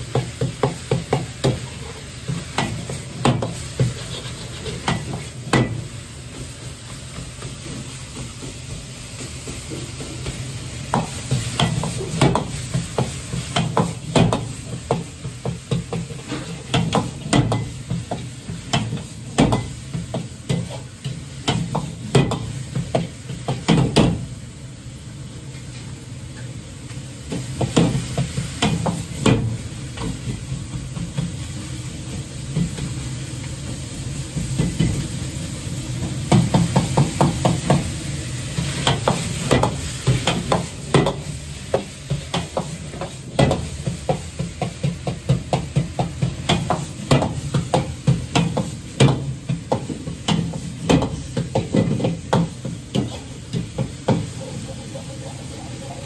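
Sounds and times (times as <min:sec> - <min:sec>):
meat sizzling: 0:00.0 - 0:25.5, 0:26.7 - 0:56.0
gas burner roar: 0:00.0 - 0:56.0
ladle scraping in a wok: 0:01.6 - 0:05.4.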